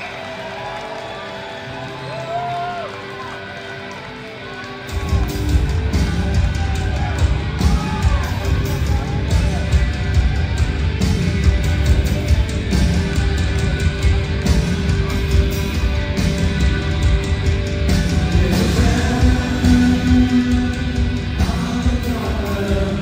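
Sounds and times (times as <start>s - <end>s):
distorted electric guitar: 0.0s - 23.0s
bass guitar: 4.7s - 23.0s
drums beating: 4.8s - 23.0s.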